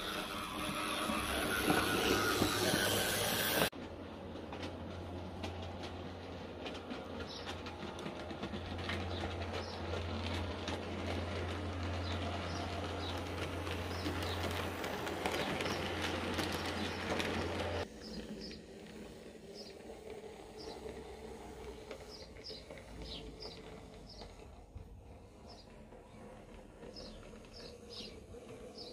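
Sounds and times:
model train motor hum: 0:00.0 - 0:28.9
wheels clicking over track: 0:00.0 - 0:28.9
birds chirping faintly: 0:11.8 - 0:28.9.

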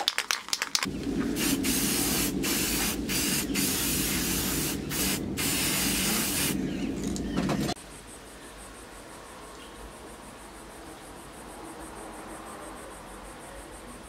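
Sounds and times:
aerosol spray can hissing: 0:01.3 - 0:06.6.

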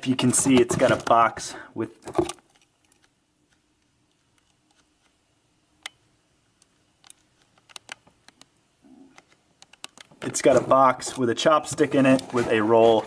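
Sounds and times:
faint steady hum: 0:00.0 - 0:13.0
small clicks: 0:06.6 - 0:10.4.

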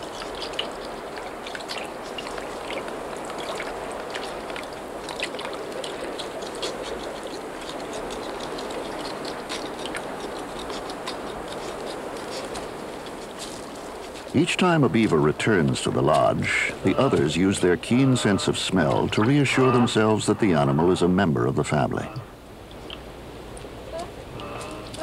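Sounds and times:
beaver teeth crunching wood: 0:00.0 - 0:18.2
steady hiss: 0:00.0 - 0:25.0.

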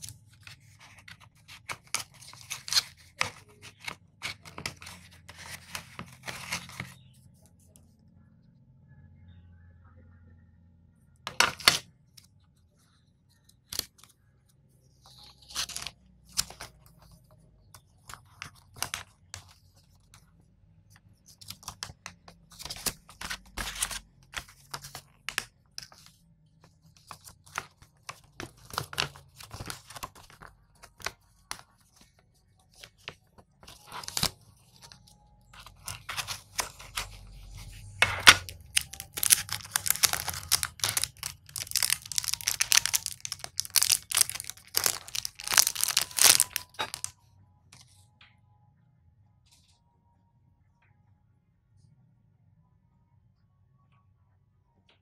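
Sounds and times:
paper rustling and crinkling: 0:00.0 - 0:07.0, 0:15.1 - 0:20.2, 0:21.2 - 0:47.2
wrapping crinkling: 0:32.8 - 0:47.1.

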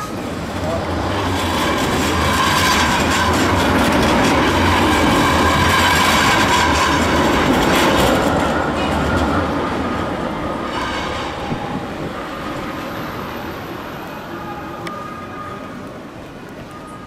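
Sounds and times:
tram wheels rumbling on rails: 0:00.0 - 0:17.0.

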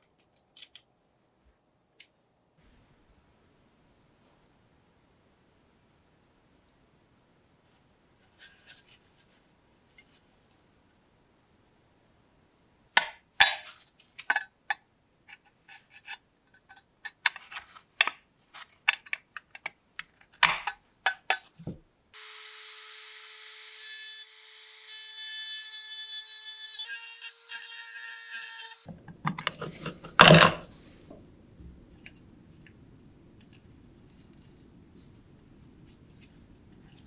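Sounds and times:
rotary tool whining: 0:22.2 - 0:28.9.

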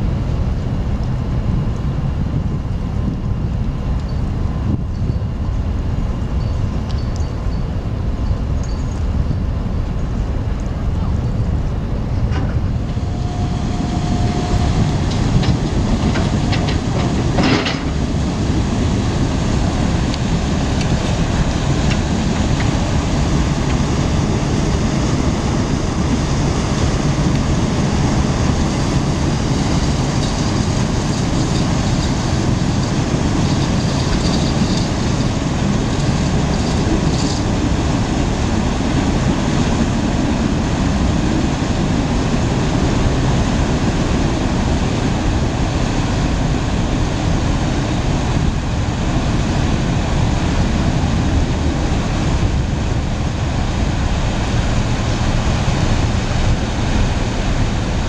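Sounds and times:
diesel engines rumbling: 0:00.0 - 0:58.0
steady tone: 0:12.1 - 0:29.8.

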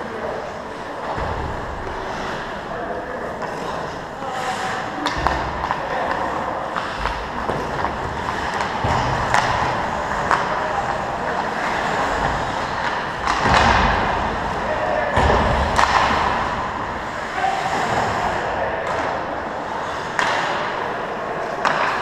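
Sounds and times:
hockey sticks and puck clacking: 0:00.0 - 0:22.0
rink background noise: 0:00.0 - 0:22.0
skate blades scraping ice: 0:01.7 - 0:14.9.

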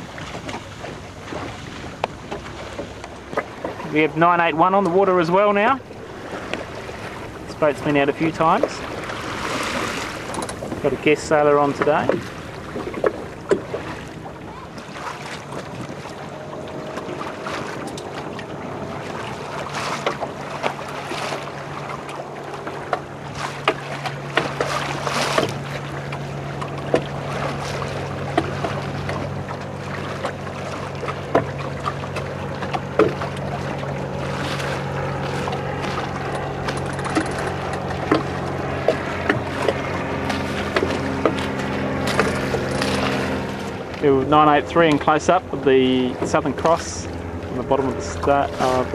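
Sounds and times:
steady low hum: 0:00.0 - 0:48.9
water splashing against boat hull: 0:00.0 - 0:48.9
wind on microphone: 0:05.8 - 0:20.6.

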